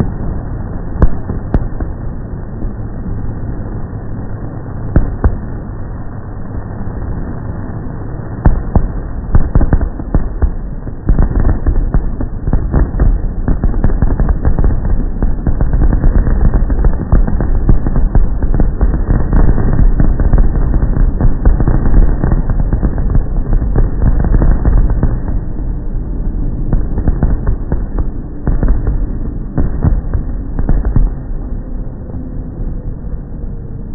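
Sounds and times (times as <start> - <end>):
fireworks bangs and crackles: 0.0 - 2.7, 4.8 - 5.6, 8.4 - 26.0, 26.6 - 31.5
steady low rumble: 0.0 - 33.9.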